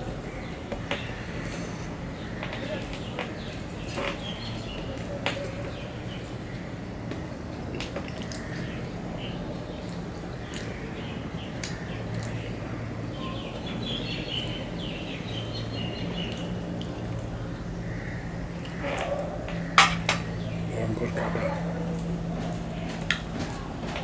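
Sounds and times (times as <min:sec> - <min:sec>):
steady low hum: 0:00.0 - 0:24.0
mouth clicks and chewing: 0:07.6 - 0:08.7, 0:09.8 - 0:12.6, 0:16.2 - 0:17.3.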